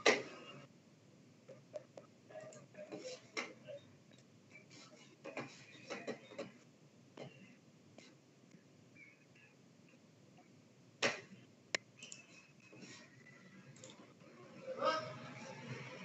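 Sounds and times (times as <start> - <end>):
faint clicks and taps: 1.5 - 4.3.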